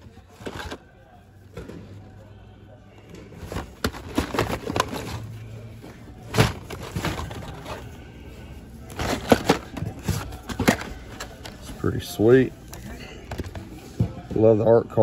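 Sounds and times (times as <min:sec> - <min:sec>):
toy packaging rustling and clicking: 0:03.4 - 0:05.3, 0:06.3 - 0:08.0, 0:08.8 - 0:12.0.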